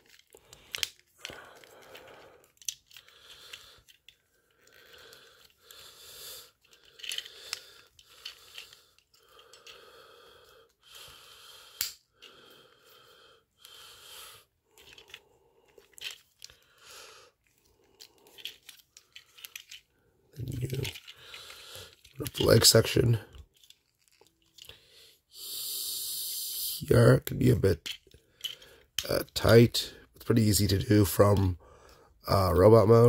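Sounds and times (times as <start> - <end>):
plastic parts clicking: 0.0 - 5.6, 6.5 - 9.8, 11.8 - 12.1, 14.7 - 16.6, 17.5 - 19.9, 20.5 - 22.7, 23.3 - 24.8, 27.8 - 29.4
plastic rustling and scraping: 17.4 - 24.7.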